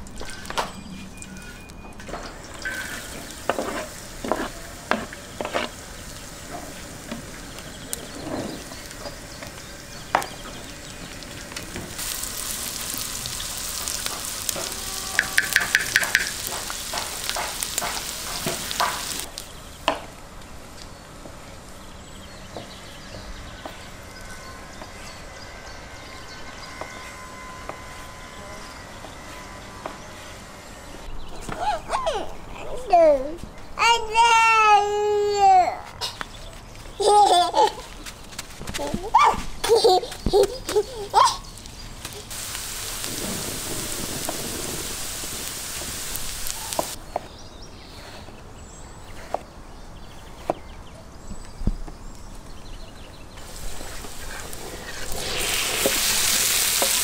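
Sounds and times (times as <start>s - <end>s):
onions sizzling in a pan: 2.2s - 19.6s, 40.3s - 47.0s, 53.4s - 57.0s
wooden spatula scraping a pan: 2.6s - 7.3s.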